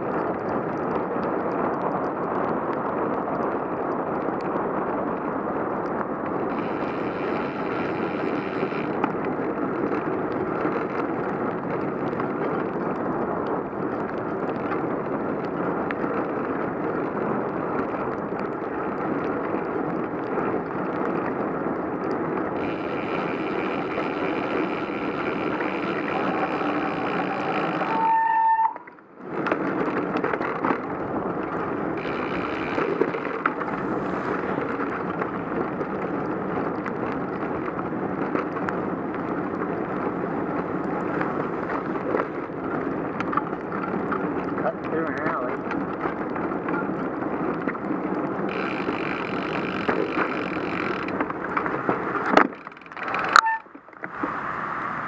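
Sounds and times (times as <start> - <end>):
bicycle tyres on wet road: 0.0 - 55.0
wind on microphone: 0.0 - 55.0
disc brake squeal: 25.0 - 28.8, 53.2 - 53.7.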